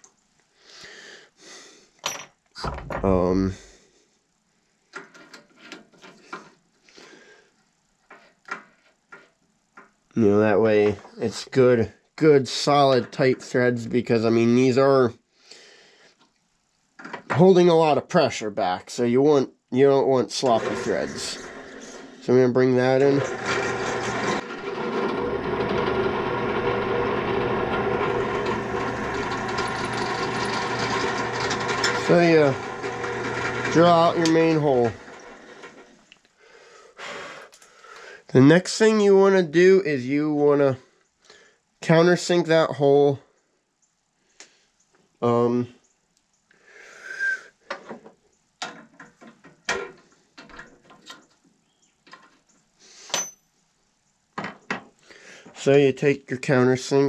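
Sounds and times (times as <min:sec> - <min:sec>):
drill press motor humming: 0:20.4 - 0:36.0.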